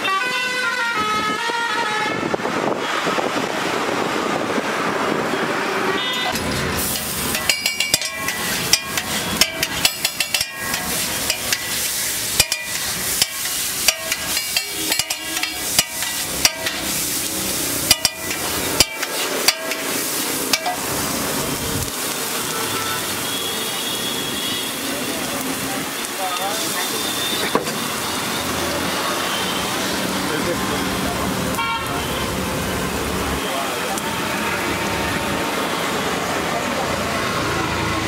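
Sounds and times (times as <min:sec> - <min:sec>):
food sizzling on griddle: 0:06.0 - 0:38.0
knife clacking on metal griddle: 0:06.3 - 0:11.8, 0:12.4 - 0:16.9, 0:17.9 - 0:19.9, 0:20.5 - 0:20.8.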